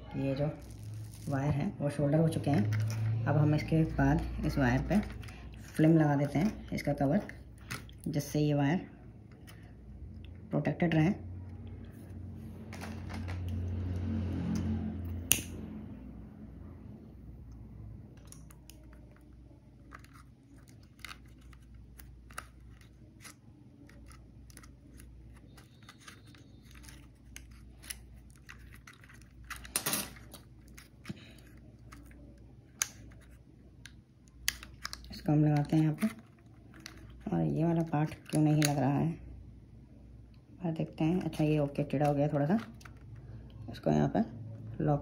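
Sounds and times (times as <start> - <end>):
plastic parts clicking and rattling: 18.2 - 38.8, 42.0 - 43.3.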